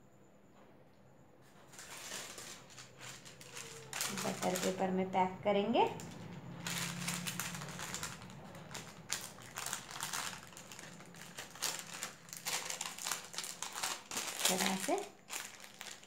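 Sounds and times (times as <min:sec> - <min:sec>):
paper crinkling and rustling: 0:01.7 - 0:04.9, 0:06.0 - 0:16.0.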